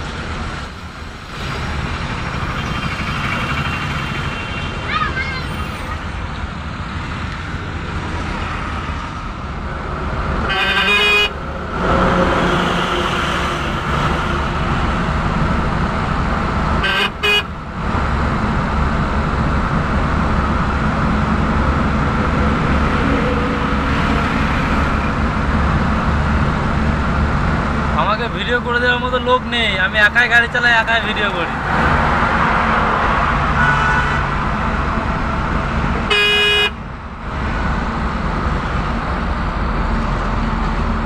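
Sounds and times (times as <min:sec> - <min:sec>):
vehicle engine and road rumble: 0:00.0 - 0:41.0
vehicle horn honking: 0:10.5 - 0:11.4, 0:16.8 - 0:17.5, 0:33.6 - 0:34.2, 0:36.1 - 0:36.8.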